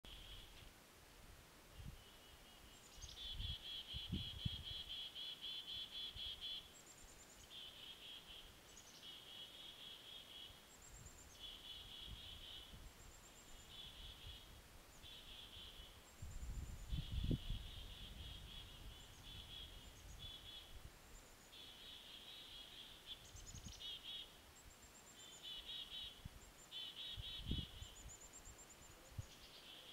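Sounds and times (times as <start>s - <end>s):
songbird trilling: 2.0s - 6.7s, 11.2s - 16.0s, 16.8s - 20.8s, 25.2s - 28.2s.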